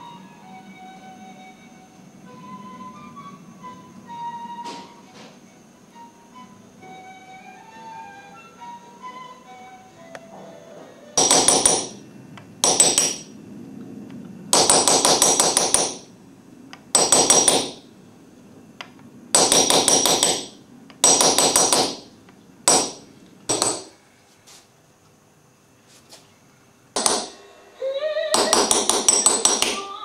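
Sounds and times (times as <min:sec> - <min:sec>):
hammer tapping metal punch: 0:11.2 - 0:12.0, 0:12.6 - 0:13.3, 0:14.5 - 0:16.1, 0:16.9 - 0:17.8, 0:18.8 - 0:22.1, 0:22.7 - 0:24.0, 0:27.0 - 0:27.4, 0:28.4 - 0:29.9.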